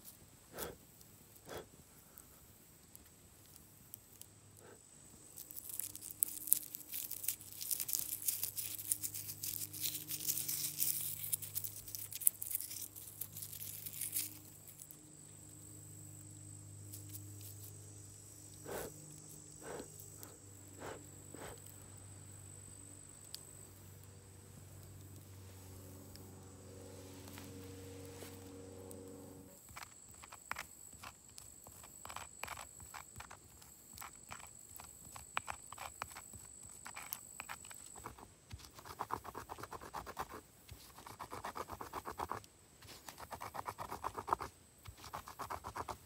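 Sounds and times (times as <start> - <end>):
short puffs of breath: 0.5 - 0.8, 1.4 - 2.4, 18.6 - 19.0, 19.6 - 21.7
dry wheat crackling and rustling: 5.3 - 14.9.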